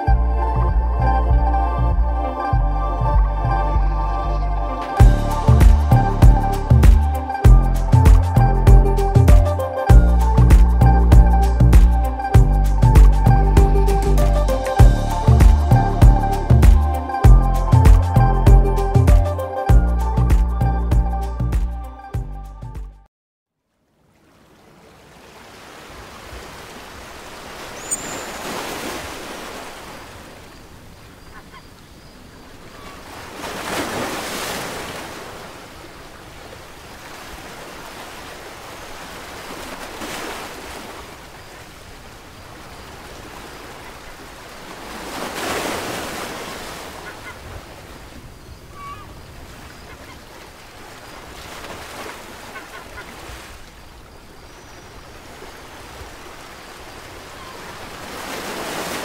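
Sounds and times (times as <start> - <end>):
ocean waves washing in: 24.0 - 31.3, 31.9 - 59.0.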